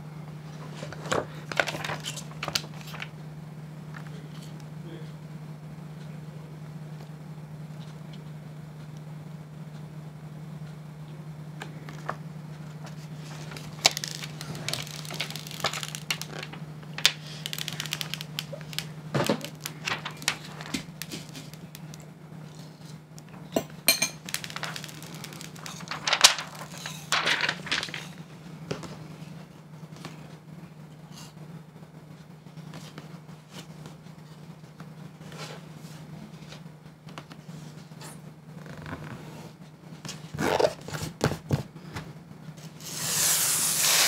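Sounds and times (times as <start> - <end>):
low hum: 11.2 - 28.7
plastic film crinkling: 13.2 - 22.0, 24.2 - 28.2.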